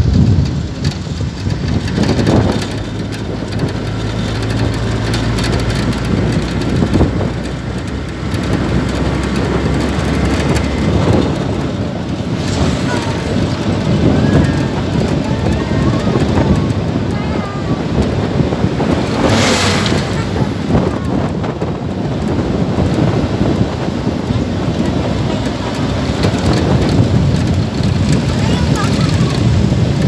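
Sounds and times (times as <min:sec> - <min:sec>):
engine and road rumble: 0:00.0 - 0:30.0
wind rushing over microphone: 0:00.0 - 0:30.0.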